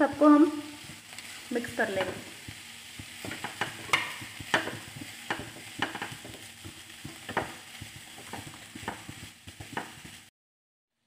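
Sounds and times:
frying sizzle: 0.0s - 10.3s
spatula scraping pan: 0.7s - 10.3s
spatula knocks: 2.0s - 10.3s.

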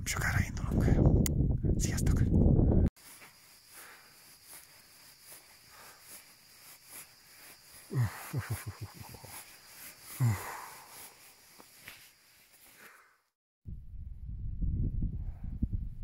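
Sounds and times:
wind buffeting microphone: 0.0s - 2.9s, 13.7s - 16.0s
man groaning: 7.9s - 9.2s.

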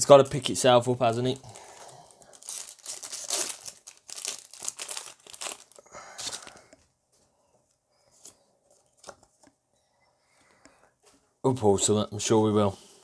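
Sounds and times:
foil wrapper crinkling and tearing: 1.1s - 6.7s.

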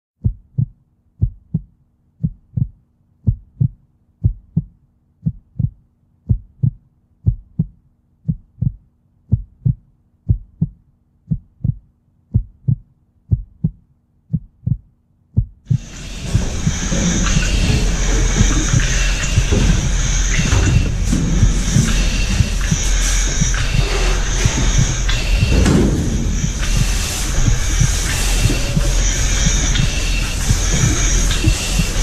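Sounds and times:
heartbeat thumps: 0.2s - 32.0s
loud rush of noise: 15.7s - 32.0s.

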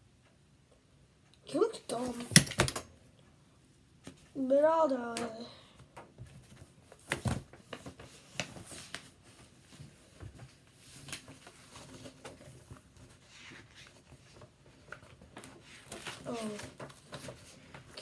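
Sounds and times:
notebook pages rustling: 6.3s - 18.0s.

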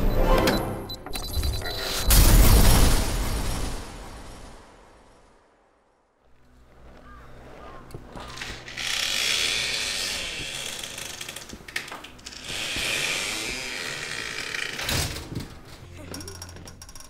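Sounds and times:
ratcheting grinding clicks: 16.1s - 17.0s.

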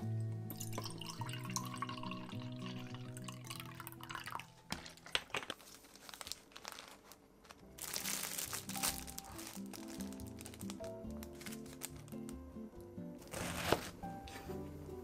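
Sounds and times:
light background music: 0.0s - 5.5s, 7.5s - 15.0s
plastic packaging crinkling: 4.7s - 12.5s, 13.2s - 14.0s.

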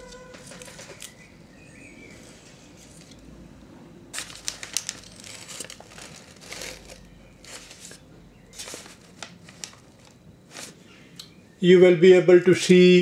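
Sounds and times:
newspaper crinkling and rustling: 4.1s - 10.9s.

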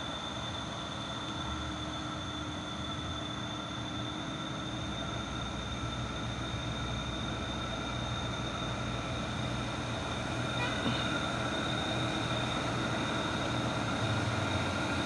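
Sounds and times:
truck diesel engine droning: 0.0s - 15.0s.

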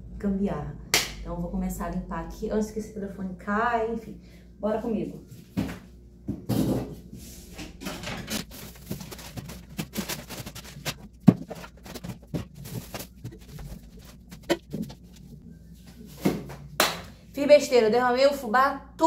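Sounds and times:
plastic packaging rustling: 8.1s - 15.4s
packages knocking on counter: 8.8s - 13.5s.

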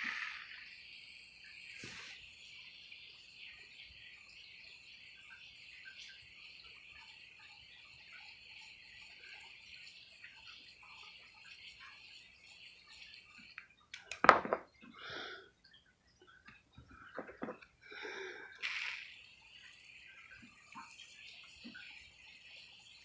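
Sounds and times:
spray nozzle hissing water: 0.0s - 13.6s, 18.6s - 22.9s.

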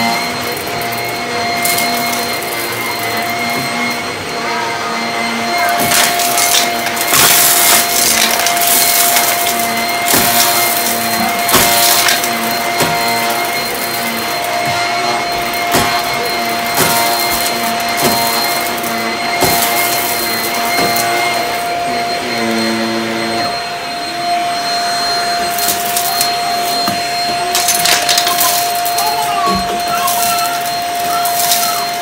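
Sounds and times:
vacuum cleaner motor whine: 0.0s - 32.0s.

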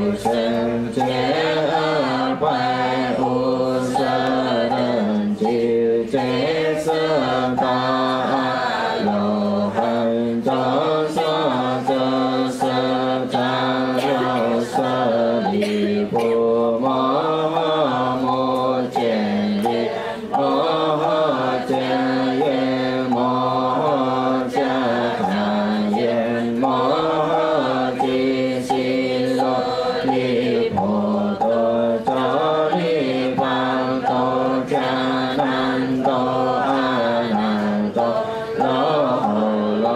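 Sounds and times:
congregation chanting in unison: 0.0s - 39.9s
faint taps keeping time: 0.0s - 39.9s.

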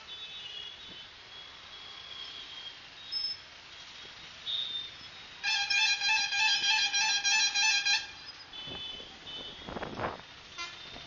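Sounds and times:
vehicle horn: 0.1s - 1.1s, 4.5s - 11.0s
traffic rushing by: 0.9s - 11.0s.

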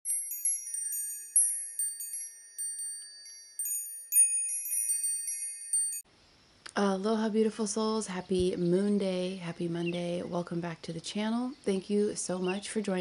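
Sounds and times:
high bright chimes: 0.0s - 6.1s.

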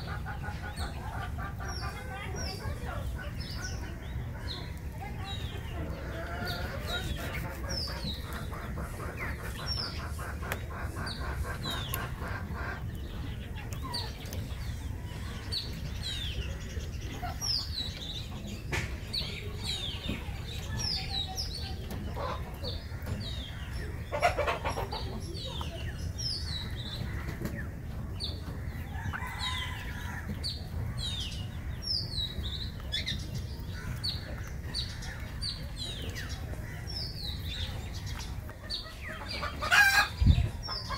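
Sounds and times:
birds chirping: 0.0s - 40.9s
chicken clucking: 0.0s - 40.9s.

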